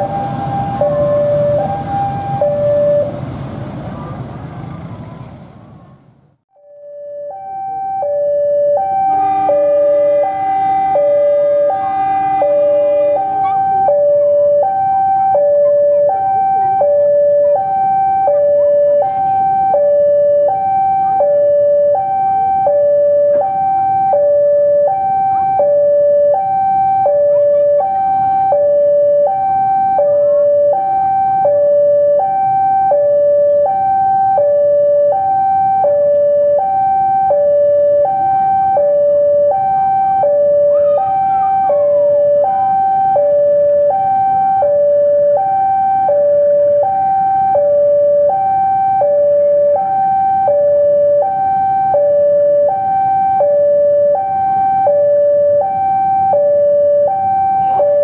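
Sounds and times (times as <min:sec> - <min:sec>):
two-tone level-crossing alarm: 0:00.0 - 0:03.2, 0:06.6 - 0:58.0
locomotive air horn: 0:08.8 - 0:19.4.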